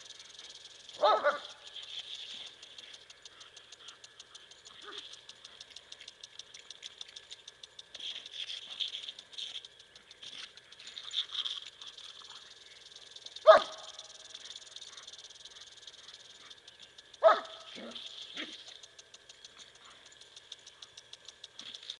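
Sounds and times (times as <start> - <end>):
lawn sprinkler hissing and ticking: 0.0 - 21.9
dog barking: 1.0 - 1.6, 13.4 - 14.0, 17.2 - 18.6.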